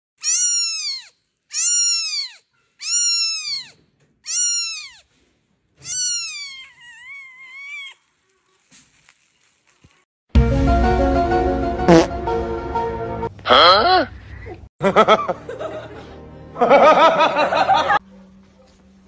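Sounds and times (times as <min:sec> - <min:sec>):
kitten mewing: 0:00.2 - 0:05.0, 0:05.8 - 0:08.0.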